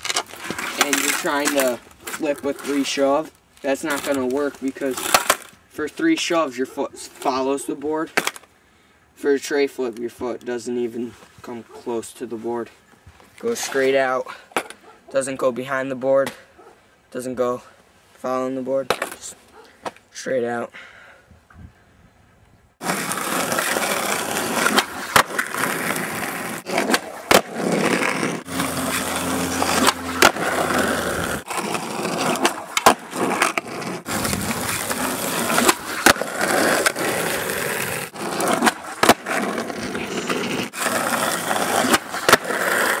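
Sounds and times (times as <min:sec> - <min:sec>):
skateboard rolling on asphalt: 0:00.0 - 0:06.3, 0:22.8 - 0:43.0
skateboard clacks: 0:22.9 - 0:43.0.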